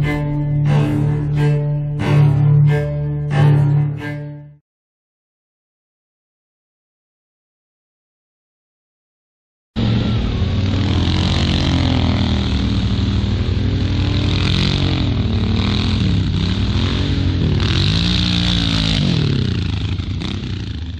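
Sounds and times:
quad engine revving: 9.8s - 20.9s.

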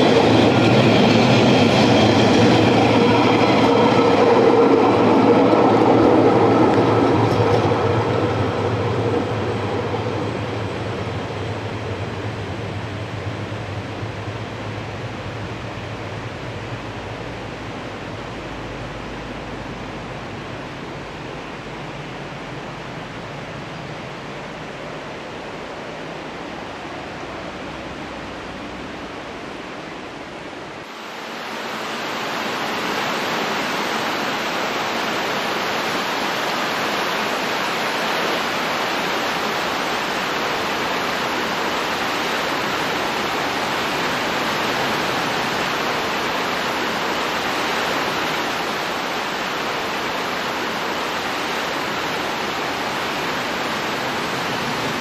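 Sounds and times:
fast river rushing: 0.0s - 55.0s
train rumbling: 0.0s - 55.0s.

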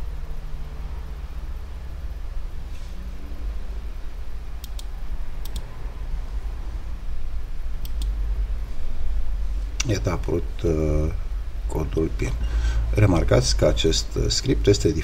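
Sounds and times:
steady low hum: 0.0s - 15.0s
computer mouse clicking: 4.6s - 5.7s, 7.8s - 8.2s.

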